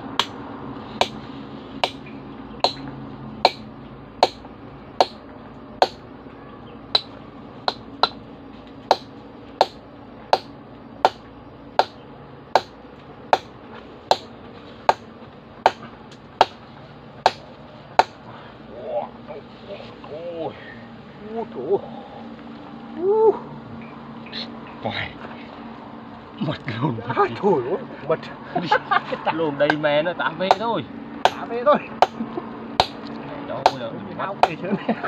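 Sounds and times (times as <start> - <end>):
hammer striking chisel into rock: 2.6 - 2.8, 3.4 - 3.6, 4.2 - 4.4, 5.0 - 5.2, 5.8 - 6.0, 7.7 - 8.2, 8.9 - 11.2, 12.6 - 13.5, 14.1 - 14.3, 18.0 - 18.2, 31.2 - 31.4.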